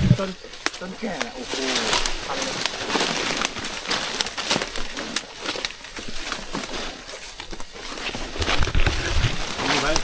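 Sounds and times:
footsteps crunching through leaves: 0.0s - 10.0s
twigs crackling: 0.0s - 10.0s.

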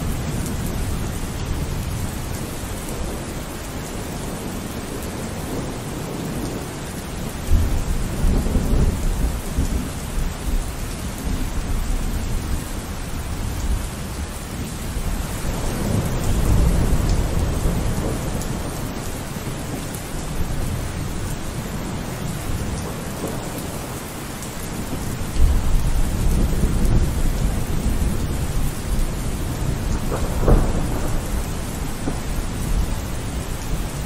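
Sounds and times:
heavy rain: 0.0s - 34.0s
wind gusts buffeting microphone: 7.5s - 34.0s.

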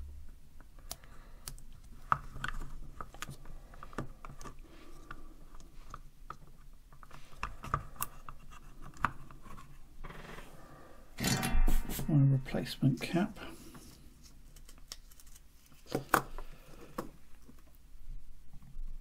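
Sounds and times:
small clicks knocks and scrapes: 0.8s - 9.8s.

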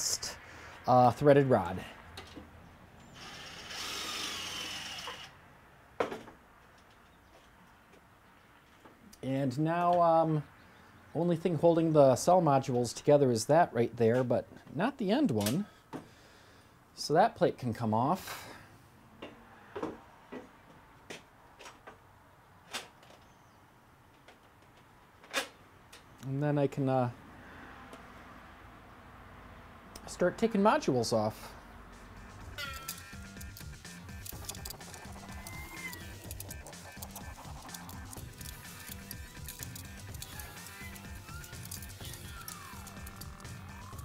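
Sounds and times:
cordless driver whirring: 3.1s - 5.4s.

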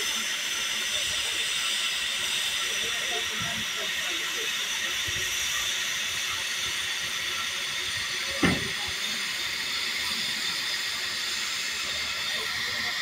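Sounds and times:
steam hissing from safety valves: 0.0s - 13.0s
short knock: 8.4s - 8.7s.

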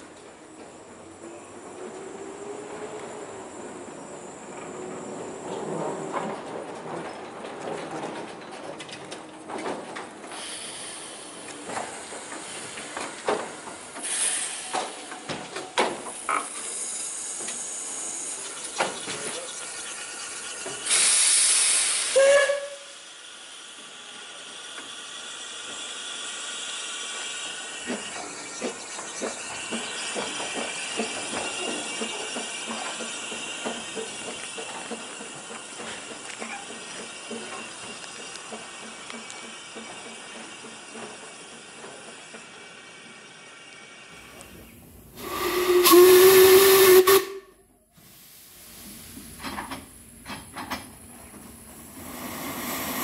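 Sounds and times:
steam locomotive chuffing: 0.0s - 53.0s
steam hissing: 10.2s - 47.4s, 48.0s - 53.0s
loud blast of steam: 10.3s - 15.3s, 20.8s - 27.8s, 44.2s - 47.4s, 48.0s - 53.0s
steam whistle note: 22.0s - 23.0s, 45.2s - 47.6s.

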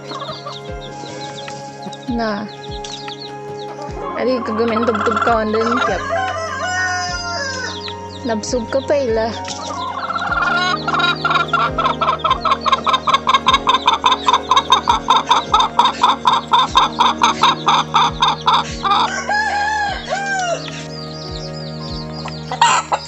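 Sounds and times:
hen clucking: 3.8s - 20.9s, 21.9s - 23.0s.

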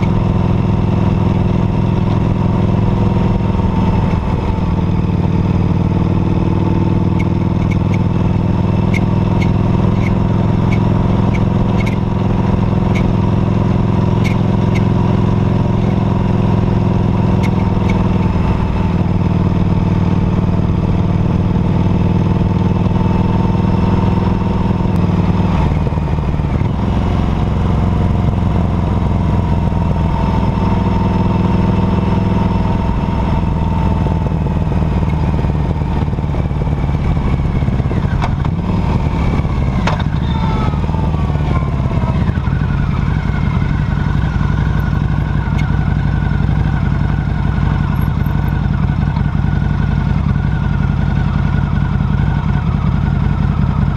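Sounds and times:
motorcycle engine running: 0.0s - 53.9s
sharp clicks and rattles: 8.9s - 12.0s.

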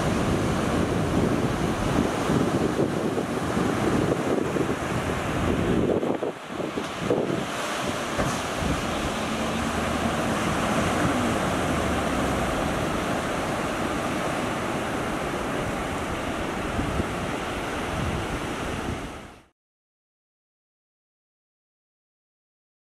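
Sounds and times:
wind buffeting microphone: 0.0s - 19.4s
surf washing onto beach: 0.0s - 19.5s
faint outboard motor: 6.9s - 16.7s.

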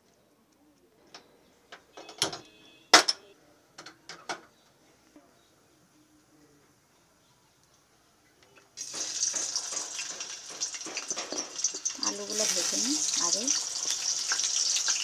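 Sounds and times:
cookware clanking on gas stove: 8.8s - 15.0s.

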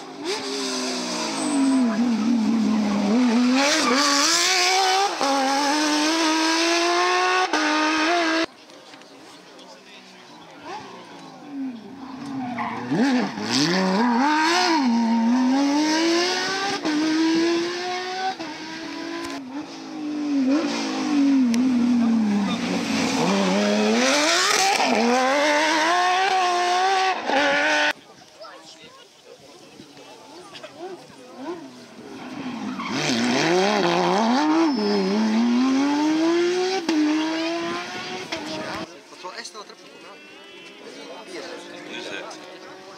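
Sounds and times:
car engine revving past: 0.1s - 8.5s, 11.6s - 28.0s, 30.8s - 38.9s.

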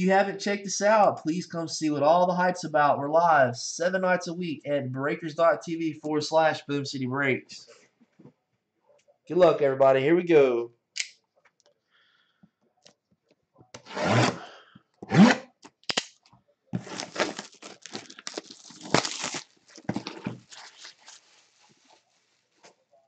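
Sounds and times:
cardboard box packaging tearing: 16.8s - 21.2s.

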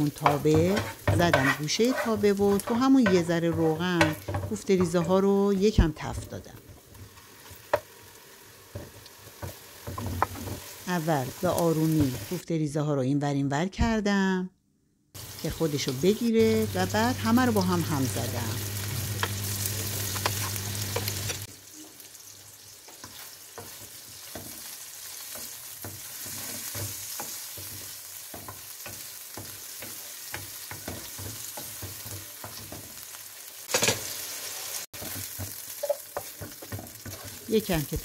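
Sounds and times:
wooden spatula scraping and tapping: 0.0s - 7.9s, 8.7s - 10.7s, 19.2s - 21.5s, 22.9s - 33.0s, 35.0s - 38.0s
meatballs sizzling in frying pan: 0.0s - 12.4s, 15.2s - 38.0s.

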